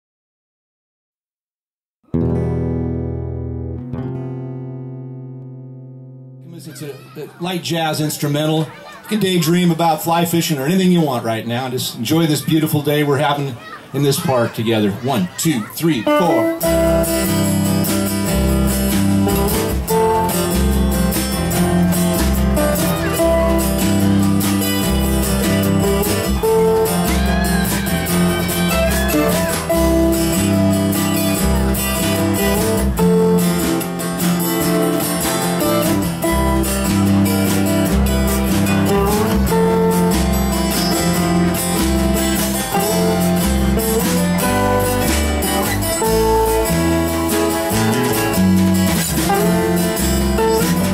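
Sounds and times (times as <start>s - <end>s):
resonator guitar: 2.1s - 13.4s, 14.0s - 50.9s
strummed acoustic guitars: 2.1s - 50.9s
low bass line: 16.2s - 50.9s.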